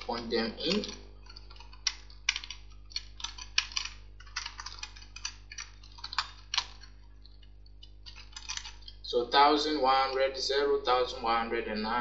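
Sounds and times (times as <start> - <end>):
typing on computer keyboard: 0.0 - 9.0.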